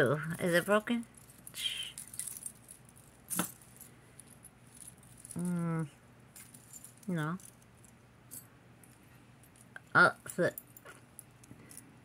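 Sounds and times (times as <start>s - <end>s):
metal jewelry clinking: 0.0s - 12.0s
woman humming: 5.3s - 6.0s.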